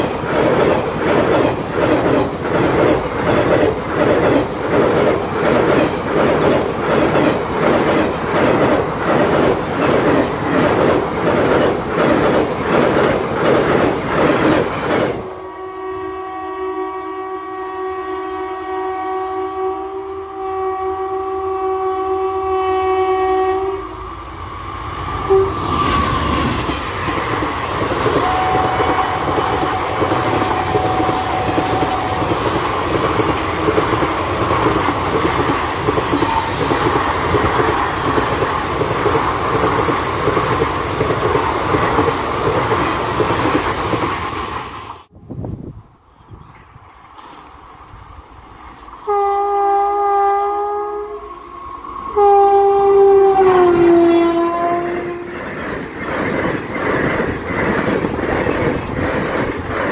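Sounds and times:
train passing rumble: 0:00.0 - 0:59.9
locomotive horn blast: 0:15.3 - 0:24.0, 0:25.2 - 0:26.0, 0:28.2 - 0:32.5, 0:49.0 - 0:55.3
wheels clacking over rail joints: 0:25.8 - 0:44.8.

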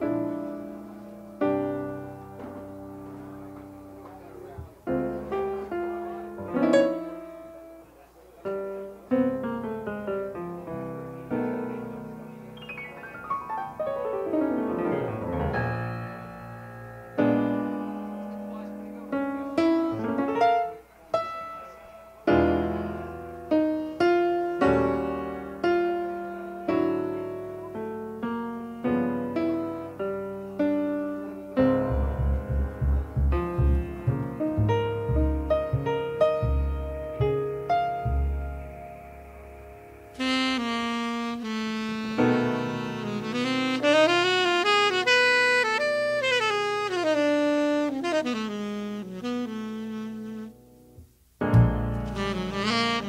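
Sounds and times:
solo piano: 0:00.0 - 0:53.0
background music: 0:31.7 - 0:42.1.

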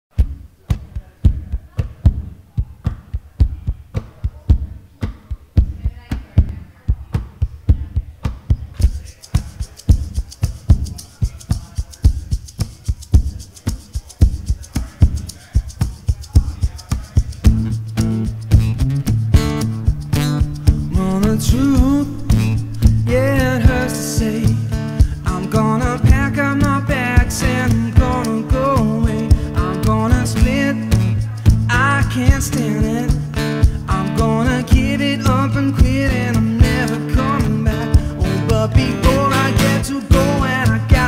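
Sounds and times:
percussive guitar slaps and taps: 0:00.2 - 0:41.0
hand shaker: 0:08.5 - 0:41.0
strummed acoustic guitar chords: 0:14.3 - 0:41.0.

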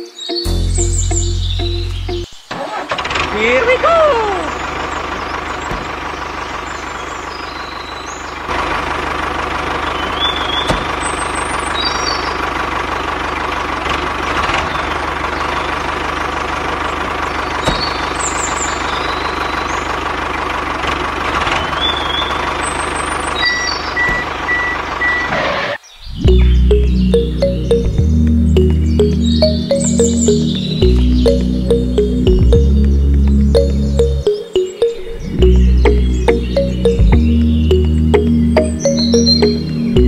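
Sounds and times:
bird chirps: 0:00.0 - 0:02.6, 0:21.6 - 0:40.0
tractor engine running: 0:00.5 - 0:25.5, 0:26.3 - 0:40.0
even beeps: 0:26.3 - 0:32.8, 0:33.6 - 0:40.0.

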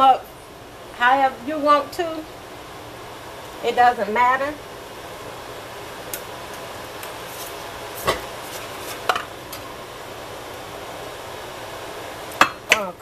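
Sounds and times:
steady room hum: 0:00.0 - 0:13.0.

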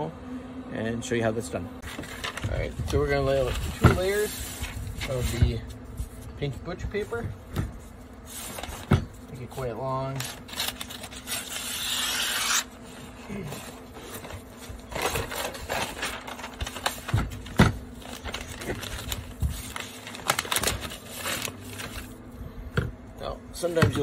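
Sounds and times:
paper rustling: 0:01.8 - 0:07.2, 0:07.8 - 0:22.2
scissors cutting paper: 0:10.2 - 0:12.7
knocks of paper roll: 0:16.9 - 0:17.8.

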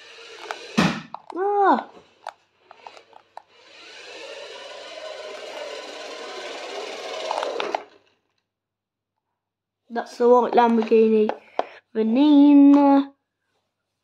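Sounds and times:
toy car motor whirring: 0:00.0 - 0:08.4.

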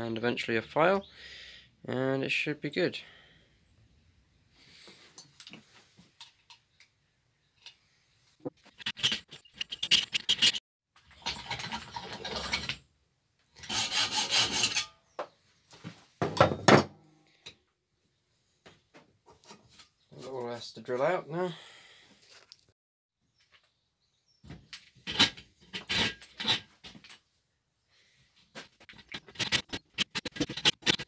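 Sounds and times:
hacksaw cutting metal: 0:08.6 - 0:10.6, 0:13.6 - 0:14.9, 0:25.1 - 0:26.6, 0:29.1 - 0:31.0.

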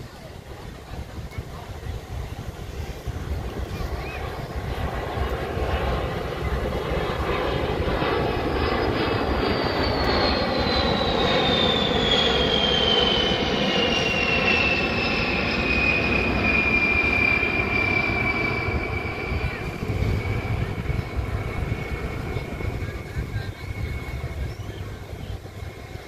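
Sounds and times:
jet bomber flying past: 0:00.0 - 0:26.0.

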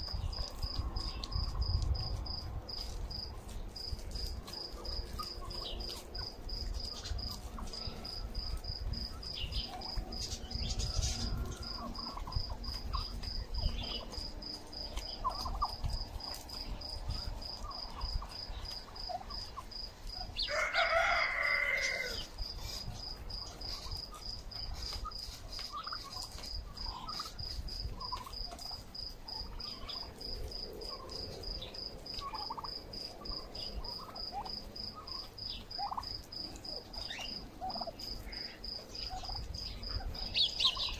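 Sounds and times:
cricket chirping: 0:00.0 - 0:40.9
turkeys calling: 0:02.8 - 0:40.9
turkey gobble: 0:09.7 - 0:14.2, 0:15.0 - 0:16.4, 0:24.8 - 0:28.8, 0:32.1 - 0:40.9.

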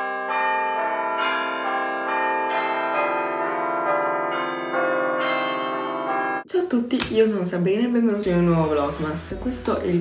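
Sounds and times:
bells chiming: 0:00.0 - 0:06.4.

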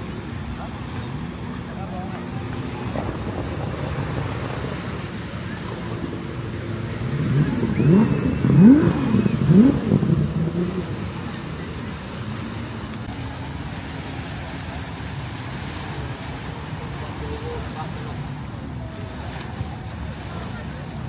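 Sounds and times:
street noise: 0:00.0 - 0:21.0
vehicle accelerating through gears: 0:02.6 - 0:12.5.

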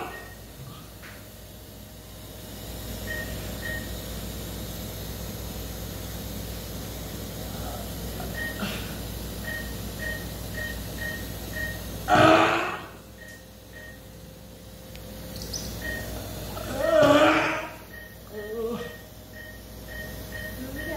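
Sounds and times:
patient monitor beeping: 0:00.0 - 0:00.6, 0:02.9 - 0:04.1, 0:08.1 - 0:12.0, 0:12.6 - 0:14.2, 0:15.3 - 0:16.5, 0:17.4 - 0:20.9
equipment hum and hiss: 0:00.0 - 0:20.9.

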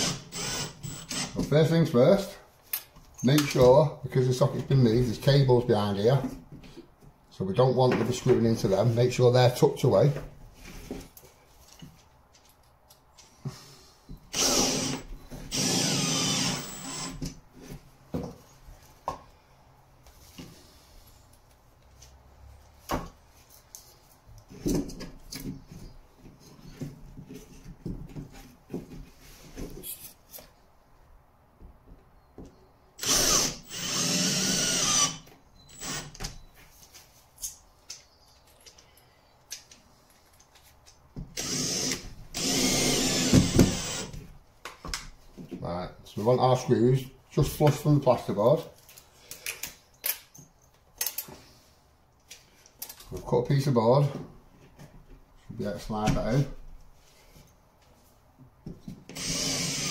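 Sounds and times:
cordless drill driving screws: 0:00.0 - 0:01.4, 0:14.3 - 0:17.2, 0:33.0 - 0:36.2, 0:41.4 - 0:44.2, 0:59.1 - 0:59.9.

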